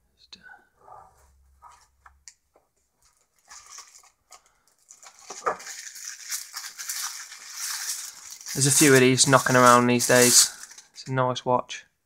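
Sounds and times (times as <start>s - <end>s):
plastic wrapping crinkling: 3.0s - 11.1s.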